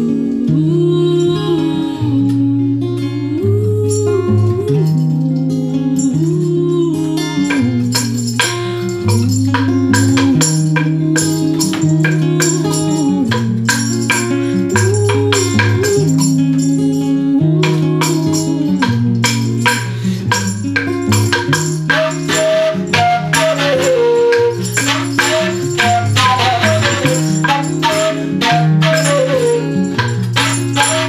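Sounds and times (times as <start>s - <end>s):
music with sliding held notes: 0.0s - 31.0s
sticks clacking: 7.5s - 16.8s, 17.6s - 31.0s.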